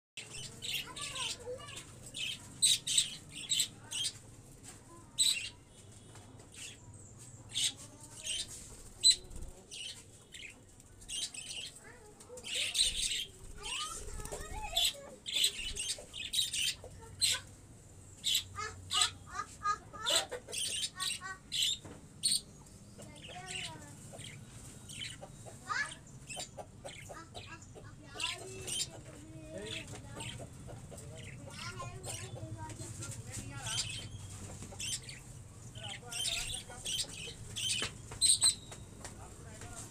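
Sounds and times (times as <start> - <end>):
chickens chirping: 11.2 - 17.6, 18.2 - 38.8
chickens clucking: 13.6 - 17.6, 18.5 - 21.5, 25.0 - 35.3.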